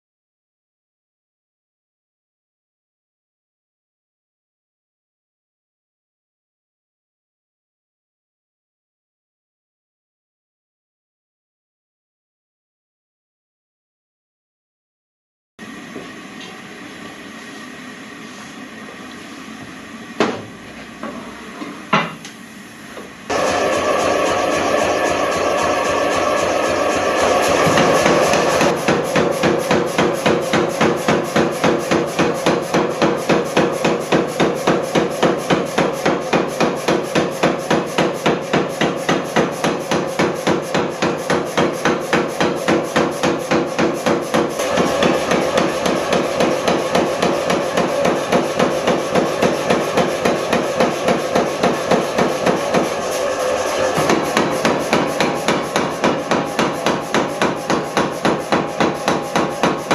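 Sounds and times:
power hammer striking hot steel: 23.3s - 59.9s.

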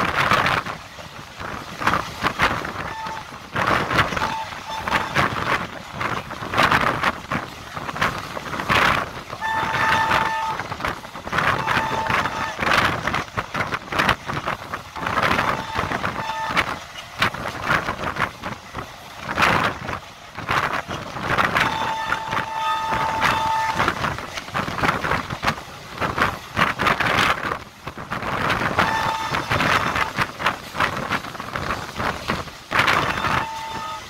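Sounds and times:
train rushing wind and rail noise: 0.0s - 34.0s
locomotive horn: 2.7s - 6.2s, 9.3s - 13.2s, 14.9s - 16.8s, 20.8s - 24.7s, 28.5s - 30.5s, 31.6s - 34.0s.

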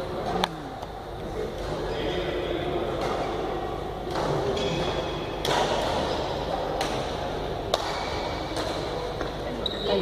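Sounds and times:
steady background noise: 0.0s - 10.0s
racket hitting shuttlecock: 4.1s - 9.3s.

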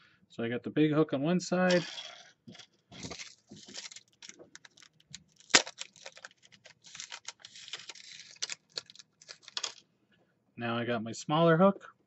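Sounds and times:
plastic package crinkling: 2.5s - 9.8s.

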